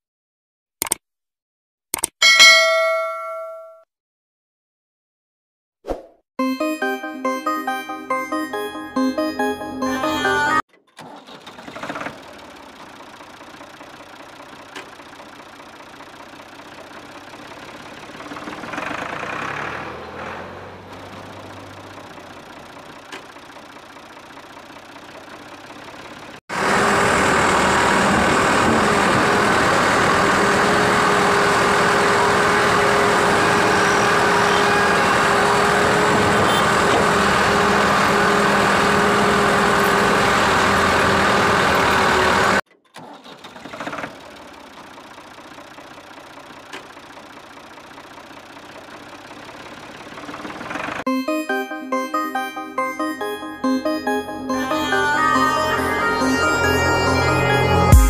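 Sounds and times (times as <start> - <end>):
engine idling: 11.1 - 20.0, 20.9 - 42.6, 43.4 - 51.0.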